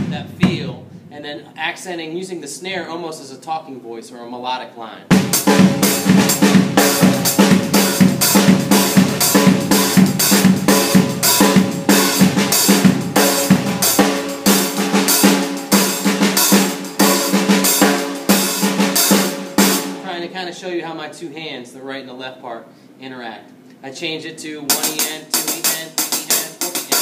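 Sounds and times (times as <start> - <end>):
bass drum pulse: 0.0 - 1.2, 5.1 - 19.9
snare drum strokes: 5.1 - 20.1, 24.7 - 27.0.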